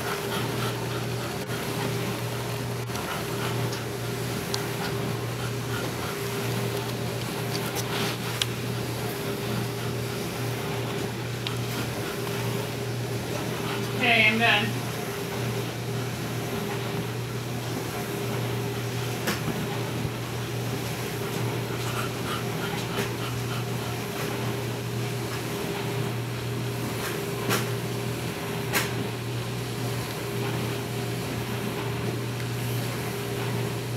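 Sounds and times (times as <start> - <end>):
dog panting: 0.0 - 26.3.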